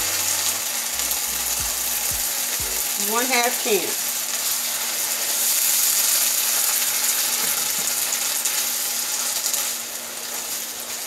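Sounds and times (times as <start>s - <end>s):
vegetables sizzling in a skillet: 2.8s - 11.0s.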